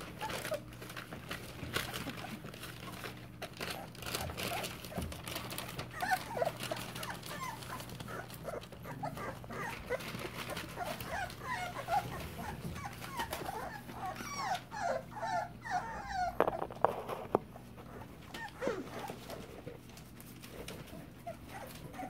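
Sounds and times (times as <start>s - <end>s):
puppies whimpering and squeaking: 0.0s - 22.0s
newspaper rustling: 9.2s - 12.0s.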